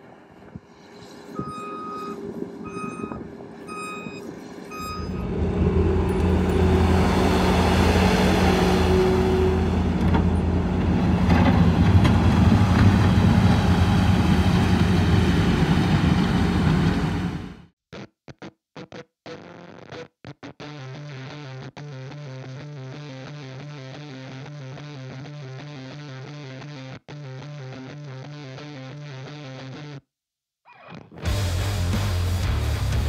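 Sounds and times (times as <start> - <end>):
diesel engine running: 0.0 - 17.7
backup alarm beeping: 1.3 - 6.8.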